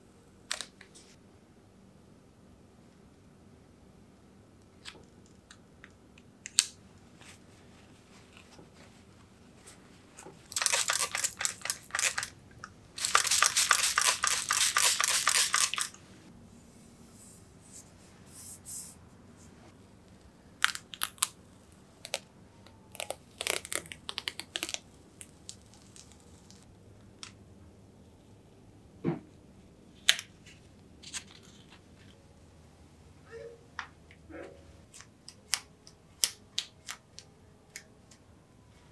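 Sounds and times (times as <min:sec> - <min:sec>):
vinyl decal peeling and crinkling: 0:10.5 - 0:12.3.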